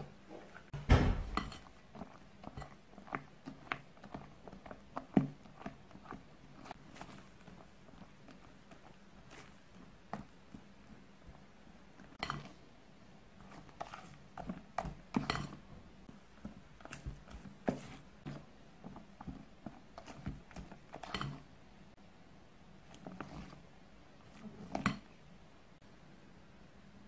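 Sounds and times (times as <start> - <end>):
spatula scraping glass bowl: 12.1 - 12.6, 13.4 - 15.7, 19.2 - 21.5.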